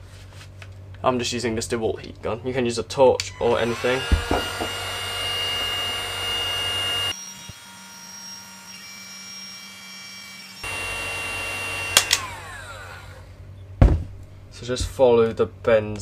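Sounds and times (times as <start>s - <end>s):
heat gun fan whining: 3.1s - 13.5s.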